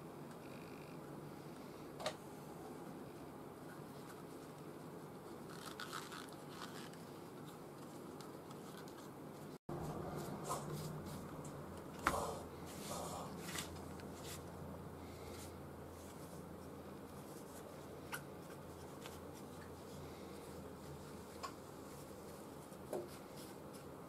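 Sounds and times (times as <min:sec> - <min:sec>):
leather sheath rustling: 0:05.5 - 0:07.0.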